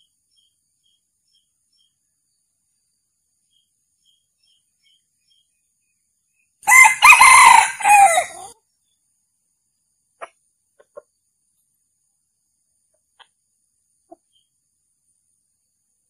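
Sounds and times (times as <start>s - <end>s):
rooster crowing: 6.7s - 8.6s.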